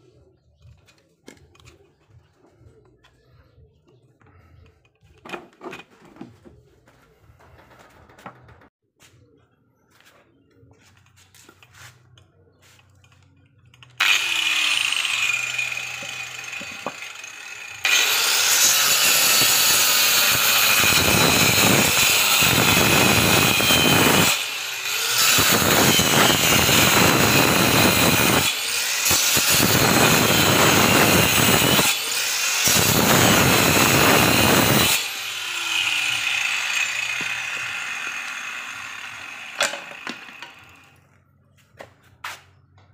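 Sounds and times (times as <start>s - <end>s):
saw blade cutting wood: 11.4s - 41.0s
angle grinder whining: 13.8s - 41.0s.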